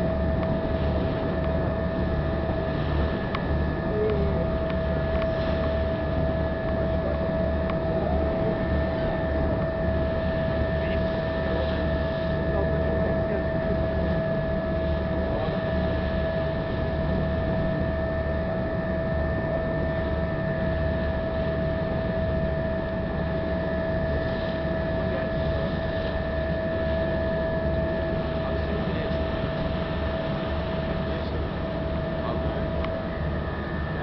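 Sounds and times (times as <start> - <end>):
constant engine whine: 0.0 - 34.0.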